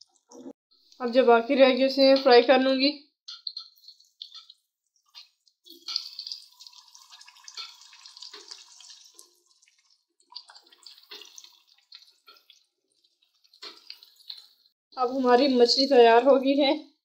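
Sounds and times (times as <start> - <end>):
fish sizzling in hot oil: 3.3 - 14.8.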